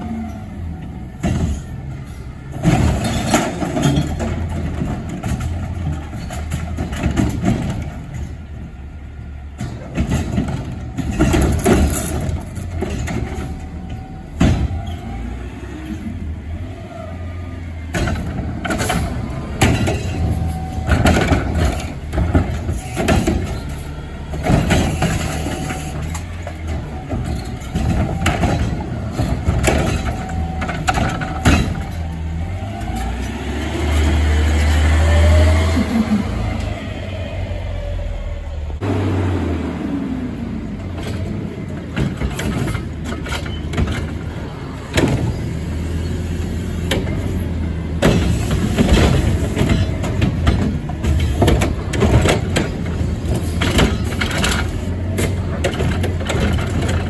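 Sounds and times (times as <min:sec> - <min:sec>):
garbage truck engine and hydraulics: 0:00.0 - 0:57.0
metal clanks: 0:17.9 - 0:32.2.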